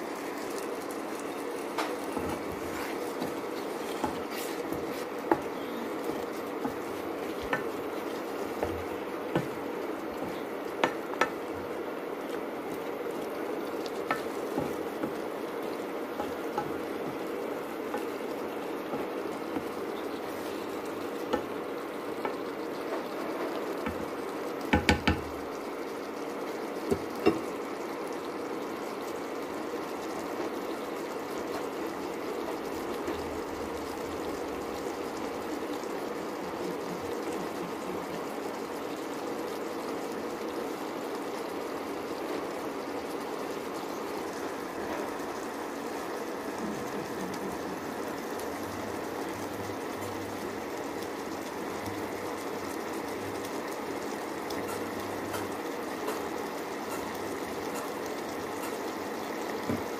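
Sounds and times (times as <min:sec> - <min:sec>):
curry simmering in a pan: 0:00.0 - 0:59.9.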